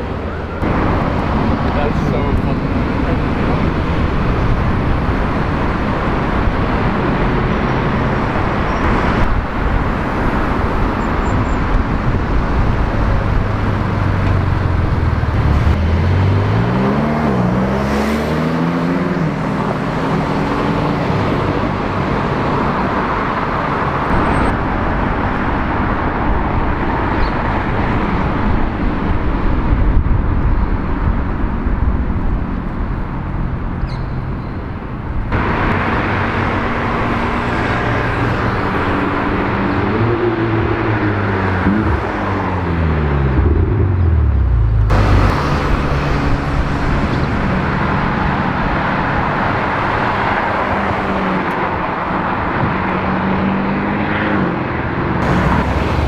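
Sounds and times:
street traffic: 0:00.0 - 0:56.0
sports car engine accelerating: 0:35.3 - 0:56.0.

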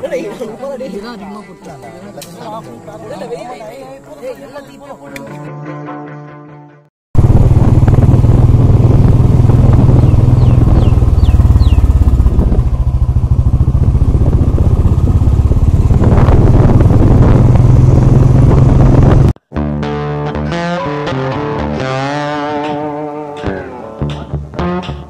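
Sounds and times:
motorcycle engine thudding: 0:08.4 - 0:17.8.

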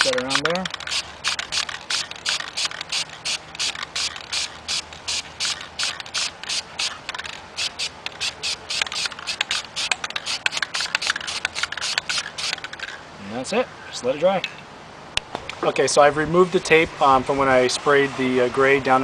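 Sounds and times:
spray can short bursts: 0:00.1 - 0:12.6.

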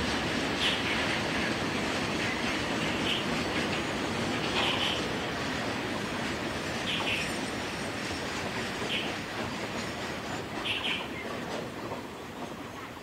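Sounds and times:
train wheels rolling on rails: 0:00.0 - 0:13.0.

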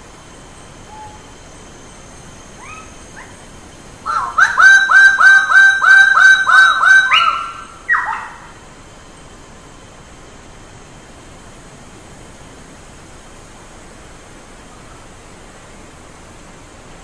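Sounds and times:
bird calling: 0:00.9 - 0:01.3, 0:02.6 - 0:03.4, 0:04.0 - 0:08.6.

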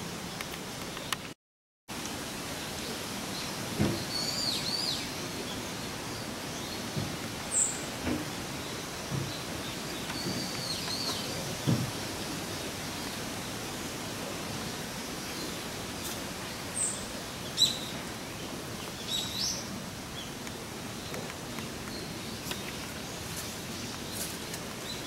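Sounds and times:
outdoor background hiss: 0:00.0 - 0:25.0.

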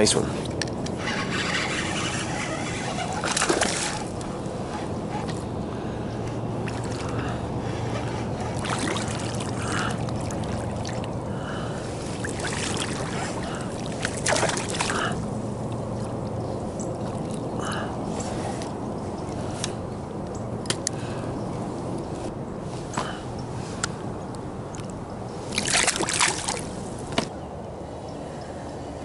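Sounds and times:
fish thrashing in splashing water: 0:02.7 - 0:04.1, 0:08.4 - 0:11.2, 0:12.0 - 0:15.2, 0:25.5 - 0:26.7.

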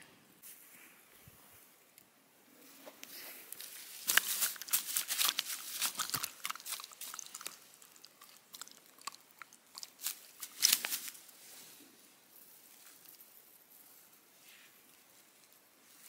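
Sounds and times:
fish thrashing in dry grass: 0:03.6 - 0:11.3.

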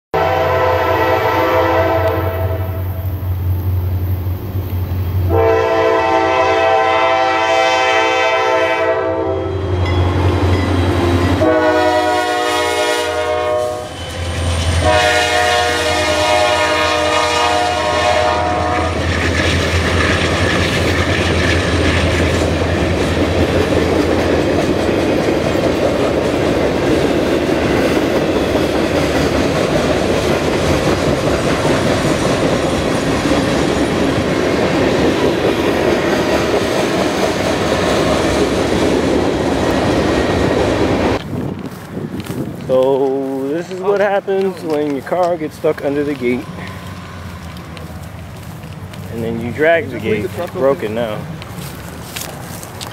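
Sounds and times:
train horn blasts: 0:00.1 - 0:03.1, 0:05.3 - 0:19.1.

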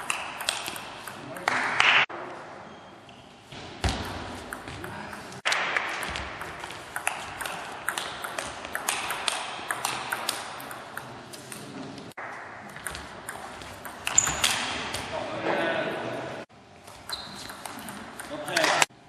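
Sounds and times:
ping pong ball clicking on bats: 0:00.0 - 0:01.9, 0:04.4 - 0:11.7, 0:12.7 - 0:14.8, 0:16.8 - 0:18.9
ball bouncing on table: 0:03.8 - 0:11.0.

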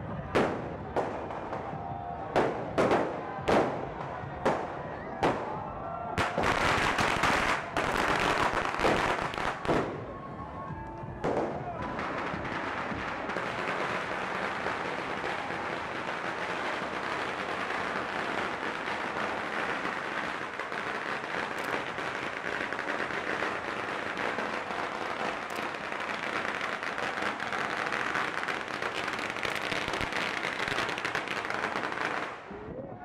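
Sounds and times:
firecrackers crackling: 0:00.0 - 0:32.6.

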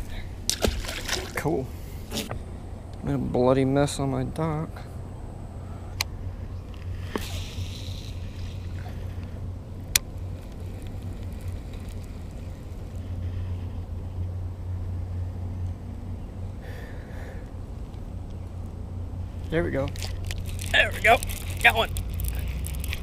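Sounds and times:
faint water sounds: 0:00.0 - 0:02.3, 0:19.5 - 0:23.0.

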